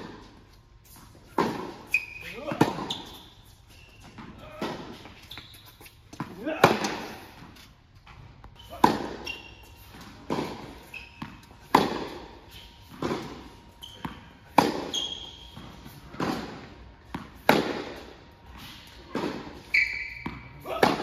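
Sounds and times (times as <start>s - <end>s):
shoe squeaks on court: 0.9s - 6.2s, 8.1s - 16.2s, 18.6s - 20.6s
tennis balls struck by rackets: 1.2s - 3.2s, 5.9s - 7.6s, 8.7s - 18.3s, 18.9s - 21.0s.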